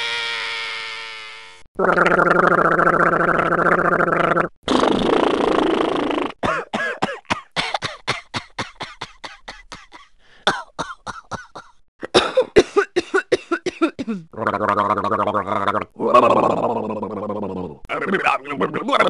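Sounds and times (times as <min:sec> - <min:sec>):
person coughing: 0:06.4 - 0:14.3.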